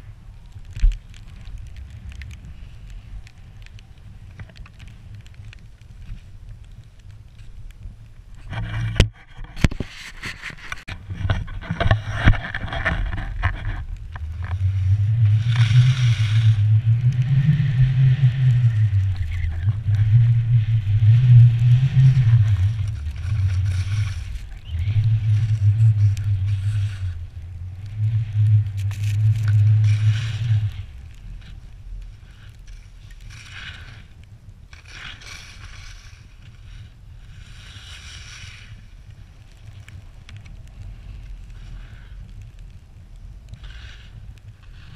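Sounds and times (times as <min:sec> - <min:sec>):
wind buffeting microphone: 0:00.0 - 0:37.3
sharp knocks and scrapes: 0:08.4 - 0:14.6
skis hissing through snow: 0:14.6 - 0:27.4, 0:28.0 - 0:42.2, 0:43.6 - 0:44.9.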